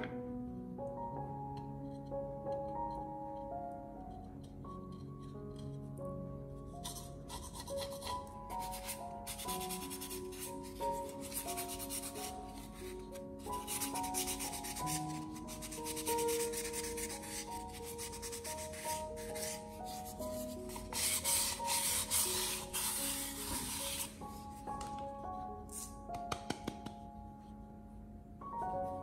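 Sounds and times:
sandpaper rubbing on cement: 0:15.6 - 0:24.2.

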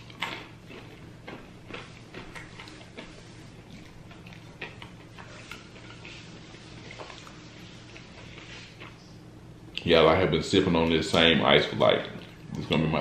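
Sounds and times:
chewing clicks and smacks: 0:00.0 - 0:06.2.

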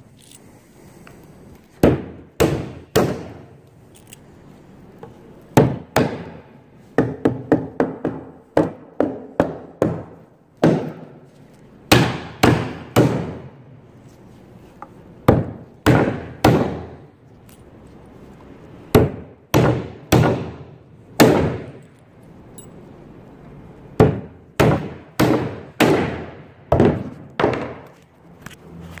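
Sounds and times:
hammer driving nails into wood: 0:01.8 - 0:03.6, 0:05.6 - 0:11.2, 0:11.9 - 0:13.5, 0:15.2 - 0:17.0, 0:18.9 - 0:21.8, 0:24.0 - 0:28.0.

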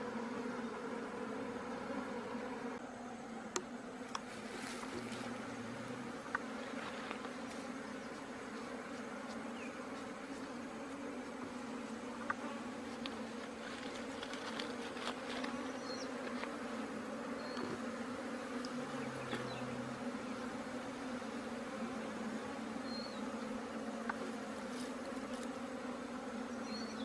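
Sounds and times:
bee colony buzzing: 0:00.0 - 0:27.0.

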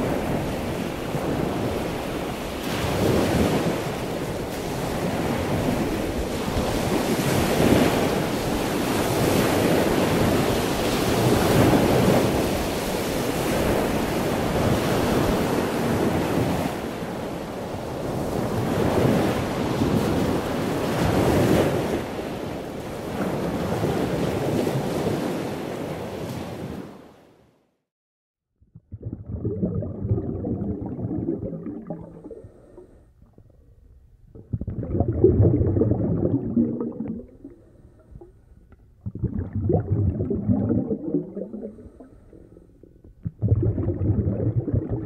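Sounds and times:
ocean waves rushing: 0:34.6 - 0:37.9, 0:39.2 - 0:42.7.

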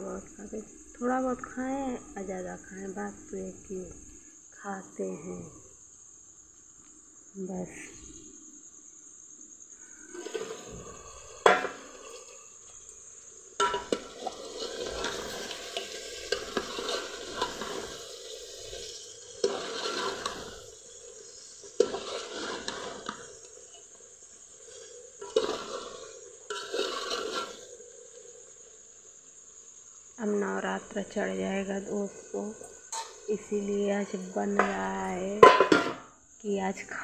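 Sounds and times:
crickets chirping: 0:00.0 - 0:37.0
spoon scraping in pot: 0:10.1 - 0:12.9, 0:13.6 - 0:27.8, 0:32.2 - 0:33.4
metal lid lifted and set back: 0:35.4 - 0:36.0.

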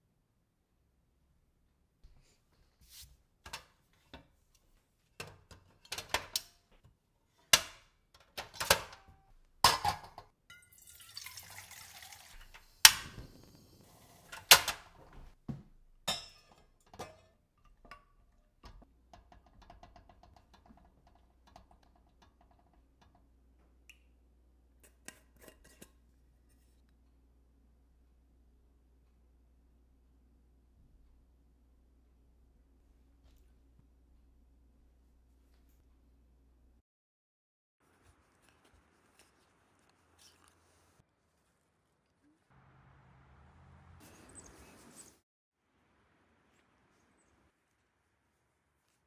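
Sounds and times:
water simmering in pot: 0:10.5 - 0:14.2.

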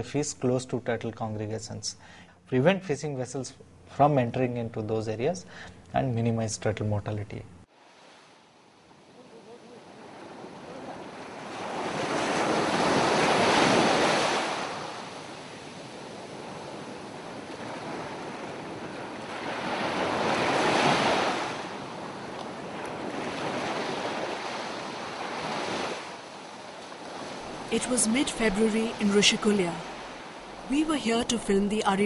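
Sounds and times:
sea waves breaking on beach: 0:07.7 - 0:31.2.

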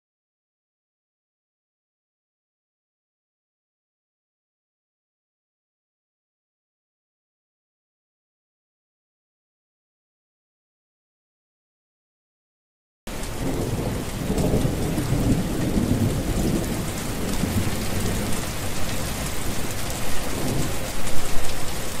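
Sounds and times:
heavy rain pouring on hard surface: 0:13.1 - 0:22.0.

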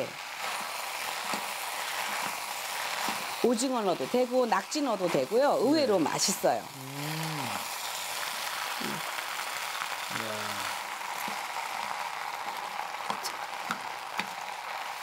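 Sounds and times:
chicken sizzling in a frying pan: 0:00.0 - 0:15.0
wooden spatula stirring: 0:00.4 - 0:03.4.

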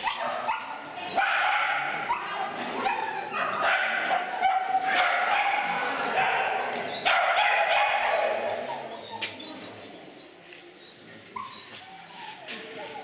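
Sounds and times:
dog barking excitedly: 0:00.0 - 0:08.5.

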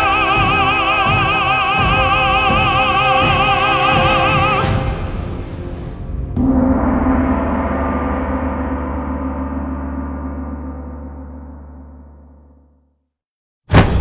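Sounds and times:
sung theme song: 0:00.0 - 0:10.3
deep gong stroke ringing: 0:06.4 - 0:12.8.

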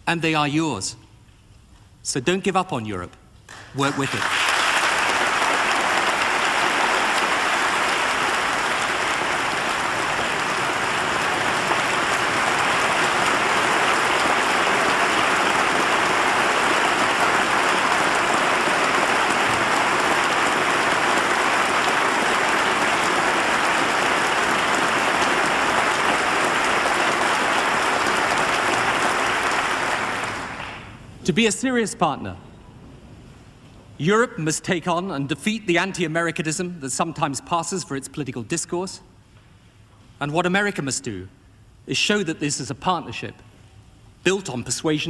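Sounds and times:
large audience applauding: 0:03.5 - 0:31.0.

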